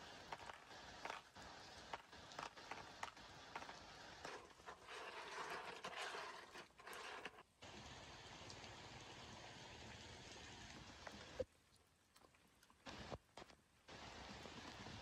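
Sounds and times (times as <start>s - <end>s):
shells clicking in plastic bowl: 0.2s - 1.3s, 1.9s - 7.4s.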